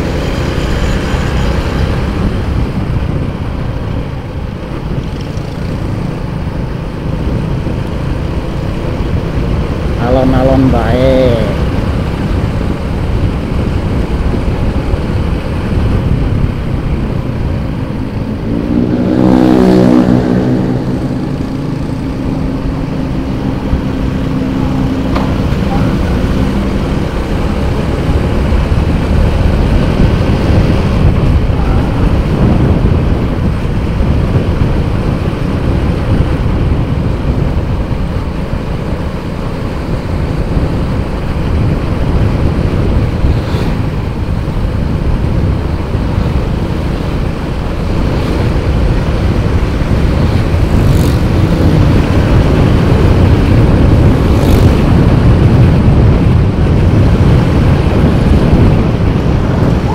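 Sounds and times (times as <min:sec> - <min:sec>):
motorcycle engine running: 0:00.0 - 0:59.9
road noise: 0:00.0 - 0:59.9
wind buffeting microphone: 0:00.0 - 0:59.9.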